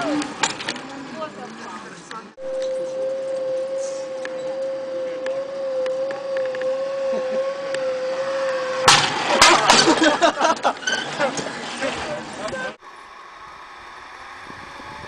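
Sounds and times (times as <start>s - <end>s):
zip line trolley whining on cable: 2.4s - 15.0s
trolley clattering and rattling: 9.0s - 12.8s.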